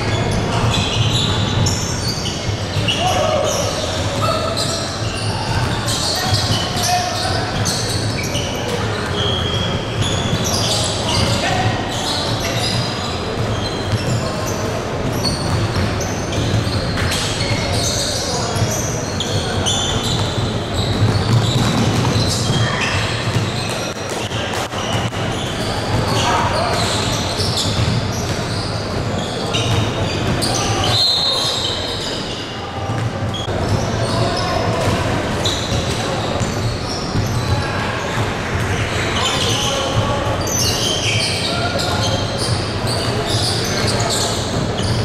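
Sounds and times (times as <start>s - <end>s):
sneakers squeaking on hardwood: 0.0s - 45.0s
basketball bouncing on court: 15.0s - 17.9s, 18.5s - 28.9s, 29.5s - 31.0s, 32.9s - 40.0s
basketball dribbling: 20.0s - 26.2s.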